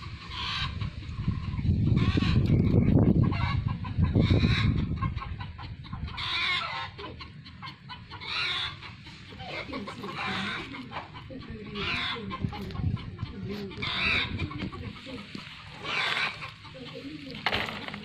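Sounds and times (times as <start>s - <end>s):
chickens clucking: 0.0s - 18.0s.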